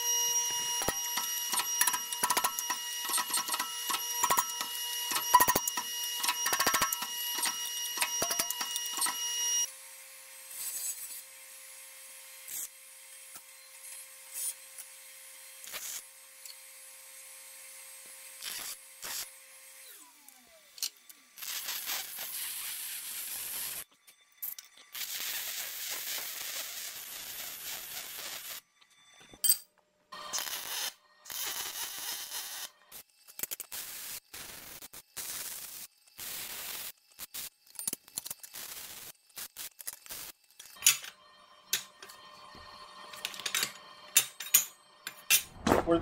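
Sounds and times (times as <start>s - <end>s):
welder crackling hiss: 0.0s - 9.5s, 10.5s - 11.6s, 12.4s - 13.4s, 15.6s - 16.6s, 18.3s - 19.3s, 21.4s - 23.8s, 24.9s - 28.6s, 30.3s - 37.6s, 38.2s - 40.6s
small electric motor humming: 0.0s - 23.9s.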